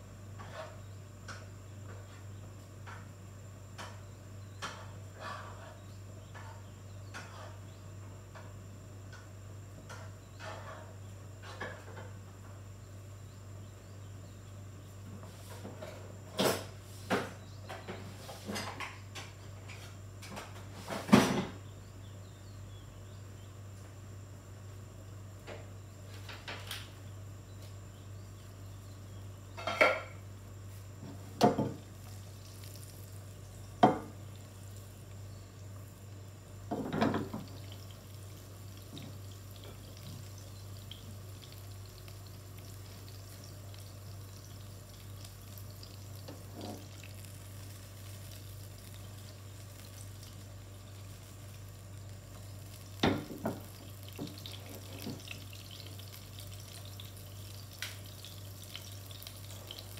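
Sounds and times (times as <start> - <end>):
butter sizzling in pan: 31.4 - 59.9.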